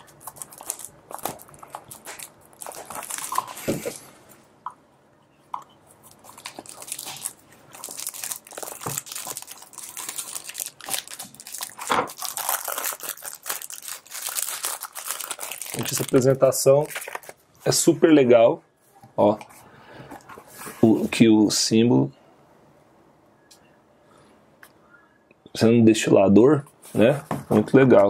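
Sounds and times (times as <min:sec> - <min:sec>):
plastic shrink-wrap crinkling and tearing: 0:00.0 - 0:04.0, 0:06.0 - 0:17.4.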